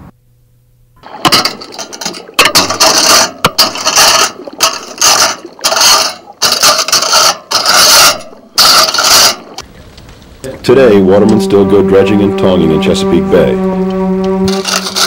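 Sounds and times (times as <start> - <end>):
metal dredge grating over shells: 1.0 - 9.6, 14.5 - 15.0.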